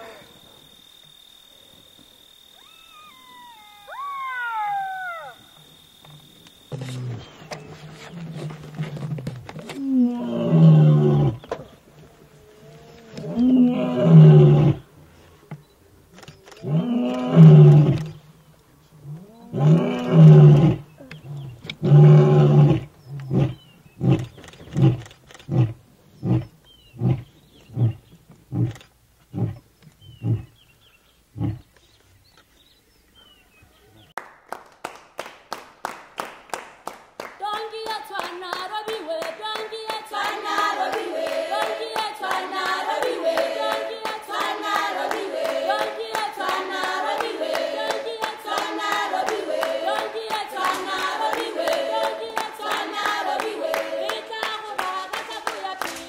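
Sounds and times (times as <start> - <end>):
lion roaring: 8.0 - 11.4, 12.0 - 14.8, 16.6 - 18.2, 19.0 - 30.5
hand claps: 34.2 - 56.0
choral singing: 37.6 - 56.0.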